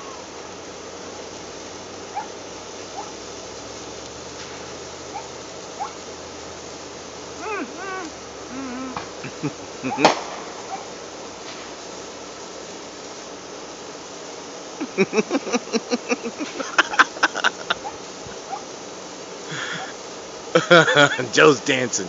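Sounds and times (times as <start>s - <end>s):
sparklers fizzing: 0.0s - 22.0s
short voice-like bursts: 7.4s - 10.1s, 19.5s - 19.9s, 20.6s - 22.0s.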